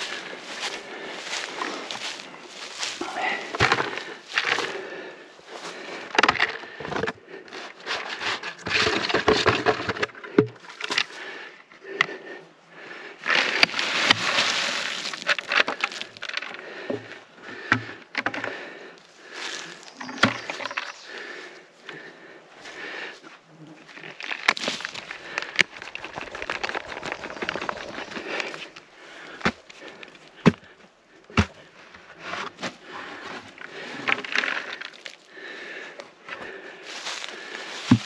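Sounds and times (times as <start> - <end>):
rustling scrape of brush: 7.7 - 10.0, 13.2 - 16.2
wood cracking and snapping: 13.5 - 16.6, 24.1 - 28.5.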